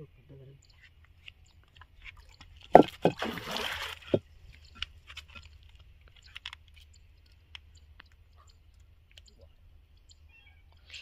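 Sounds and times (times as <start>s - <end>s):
fish slapping water: 2.4s - 4.3s
water splash: 2.8s - 4.2s.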